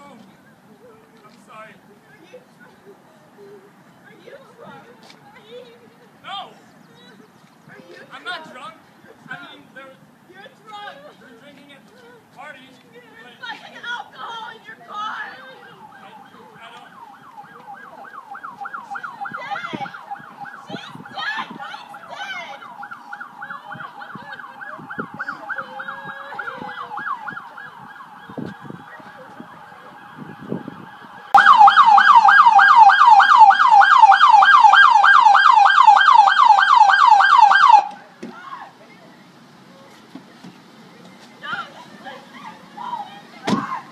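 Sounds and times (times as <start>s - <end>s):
siren yelping: 15.3s - 38.0s.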